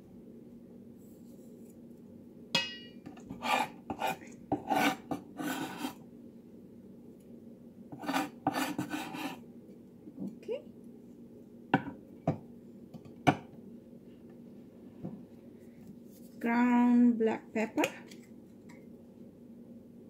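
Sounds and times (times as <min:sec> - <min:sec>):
knife scraping on cutting board: 0:03.2 - 0:06.0, 0:08.0 - 0:09.4.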